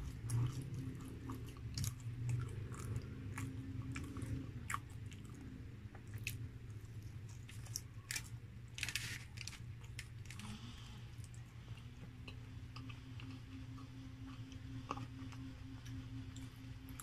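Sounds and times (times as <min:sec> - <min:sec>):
chewing french fries: 0:00.0 - 0:17.0
aluminium foil crinkling: 0:07.5 - 0:10.5.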